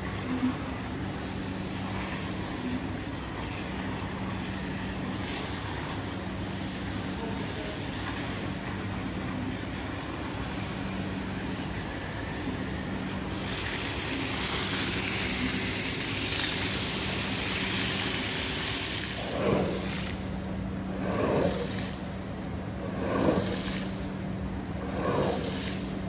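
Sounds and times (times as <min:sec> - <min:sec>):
low machine hum: 0:00.0 - 0:26.0
water spraying onto rug: 0:13.3 - 0:20.2, 0:24.8 - 0:25.8
swishing strokes across wet rug: 0:13.7 - 0:20.2, 0:20.9 - 0:22.0, 0:22.8 - 0:23.9, 0:24.8 - 0:25.8.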